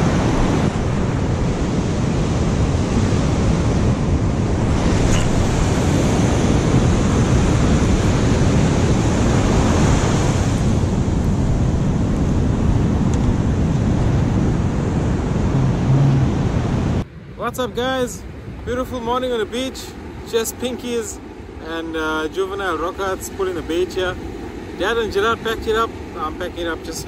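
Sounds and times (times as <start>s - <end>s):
wind buffeting the microphone: 0.0s - 21.6s
surf washing up a beach: 0.0s - 27.0s.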